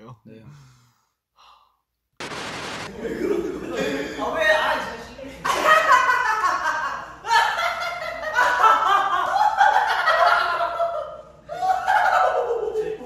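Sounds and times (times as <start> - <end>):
young men laughing loudly: 2.9 - 4.3, 5.5 - 13.0.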